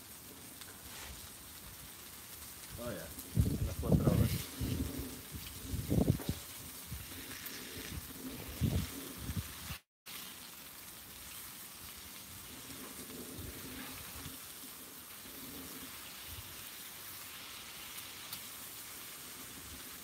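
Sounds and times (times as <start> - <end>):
meat sizzling on a griddle: 0.0 - 20.0
metal spatula scraping: 12.6 - 16.6.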